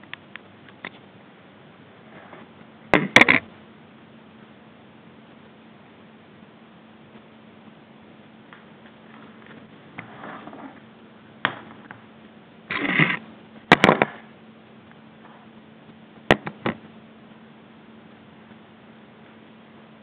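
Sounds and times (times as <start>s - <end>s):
faint electrical hum: 0.0s - 20.0s
scraping rustle: 2.0s - 3.4s, 8.8s - 10.9s.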